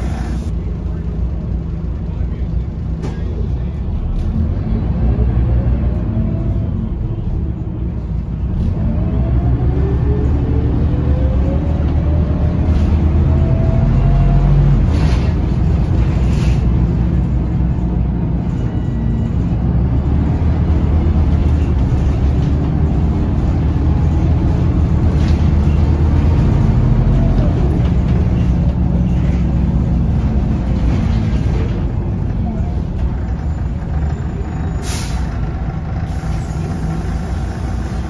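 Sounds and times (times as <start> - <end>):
bus diesel engine: 0.0 - 38.0
brief air hisses: 34.8 - 35.3.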